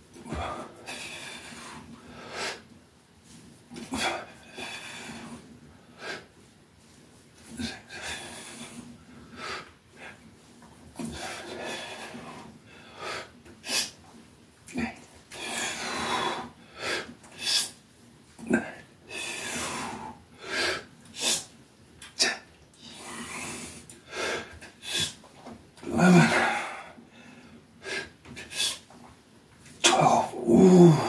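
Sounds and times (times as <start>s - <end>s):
man breathing heavily: 0.2s - 10.3s, 11.0s - 14.0s, 14.8s - 17.8s, 18.5s - 21.5s, 22.1s - 28.9s, 30.2s - 31.0s
man grunting: 25.8s - 26.8s, 29.8s - 31.0s.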